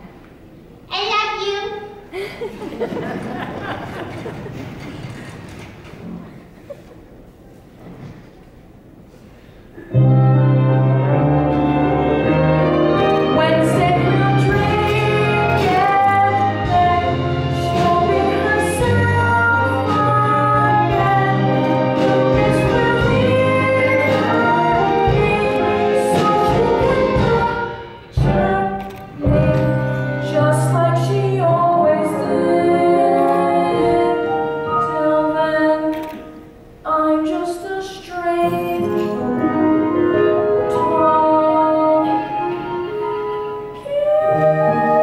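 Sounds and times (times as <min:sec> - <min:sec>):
instrumental accompaniment: 0:09.8 - 0:36.8, 0:38.3 - 0:45.0.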